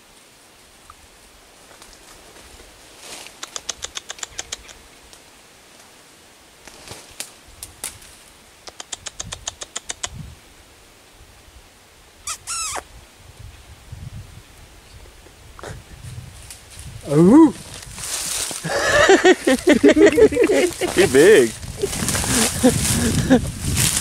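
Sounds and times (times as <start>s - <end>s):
animal sharp clicking notes: 3.4s - 4.8s, 8.6s - 10.2s.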